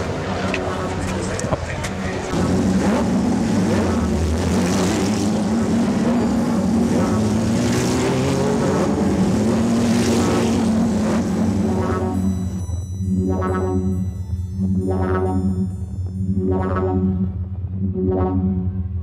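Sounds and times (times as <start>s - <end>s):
race car engines idling: 0.0s - 12.8s.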